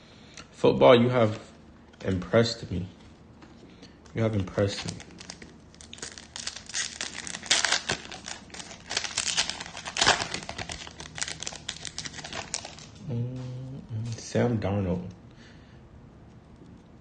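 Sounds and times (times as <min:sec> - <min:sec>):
wrapper being torn and crinkled: 0:04.5 - 0:13.1.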